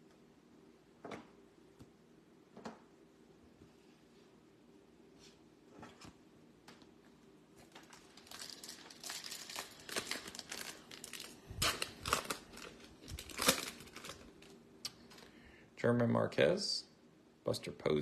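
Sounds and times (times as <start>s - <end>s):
plastic wrapper crinkling: 7.6s - 15.3s.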